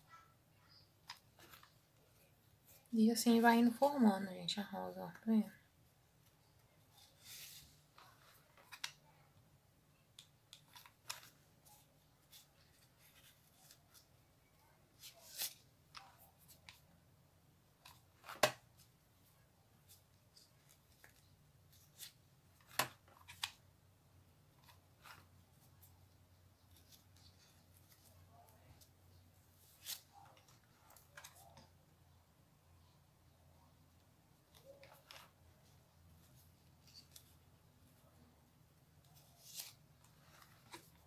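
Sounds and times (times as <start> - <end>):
hands rustling ribbon: 6.2 - 9.3.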